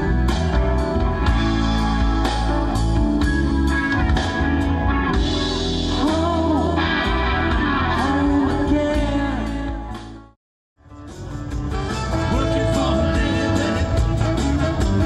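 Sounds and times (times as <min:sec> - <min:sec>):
bass guitar: 0:00.0 - 0:15.0
drums: 0:00.0 - 0:15.0
electric guitar: 0:00.0 - 0:15.0
keyboards: 0:00.0 - 0:15.0.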